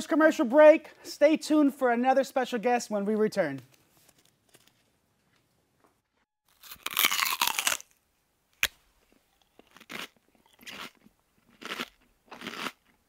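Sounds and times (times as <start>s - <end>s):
cookie crunching: 6.5s - 7.9s, 8.6s - 13.0s.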